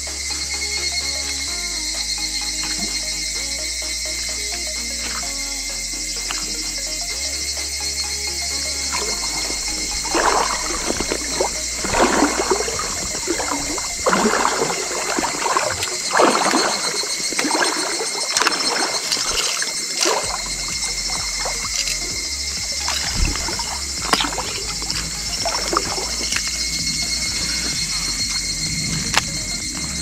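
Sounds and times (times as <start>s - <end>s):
water sloshing and splashing: 8.8s - 28.3s.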